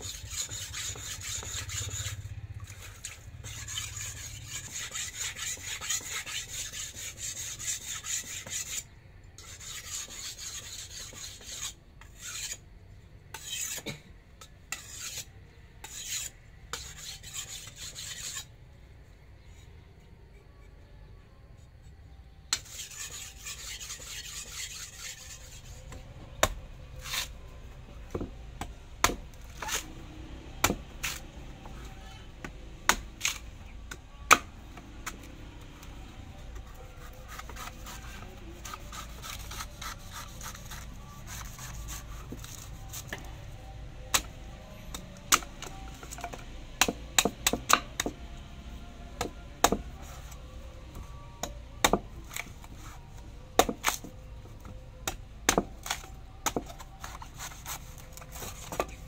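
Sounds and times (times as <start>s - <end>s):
machete chopping coconut: 25.8s - 27.3s, 28.1s - 31.8s, 32.4s - 35.4s, 44.1s - 48.2s, 49.2s - 50.1s, 51.4s - 52.6s, 53.6s - 59.0s.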